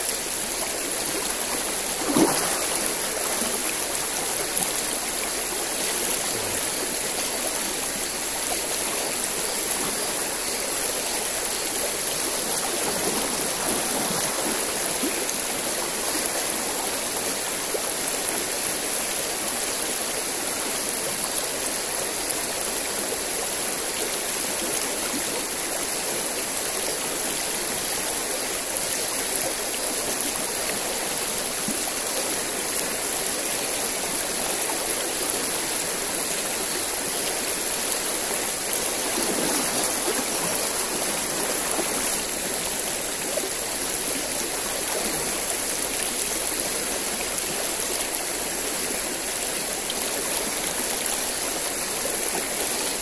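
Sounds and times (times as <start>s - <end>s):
stream rushing: 0.0s - 53.0s.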